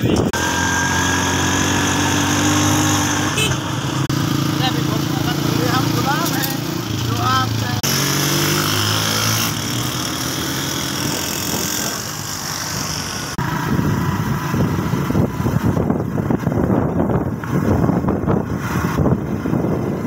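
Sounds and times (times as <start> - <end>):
small motorcycle engine running: 0.0 - 20.0
wind buffeting microphone: 6.6 - 12.4, 13.3 - 20.0.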